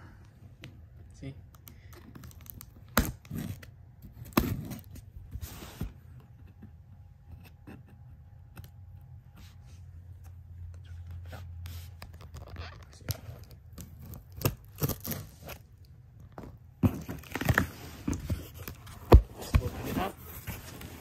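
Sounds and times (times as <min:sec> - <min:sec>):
cardboard box tearing: 0:13.3 - 0:15.7, 0:16.8 - 0:21.0.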